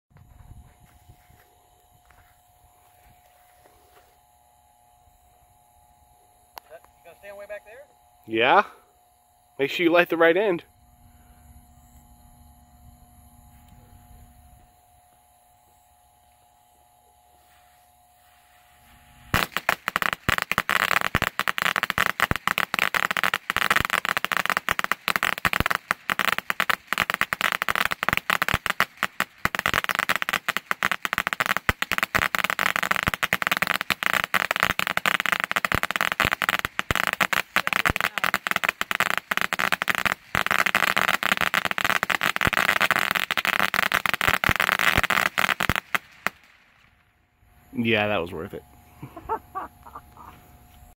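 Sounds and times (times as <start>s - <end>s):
firecrackers banging rapidly: 19.3s - 46.6s.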